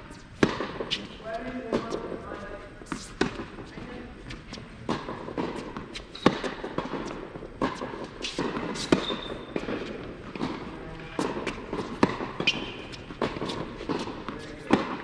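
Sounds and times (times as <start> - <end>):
rackets hitting tennis ball: 0.0 - 15.0
tennis ball bouncing on court: 0.1 - 15.0.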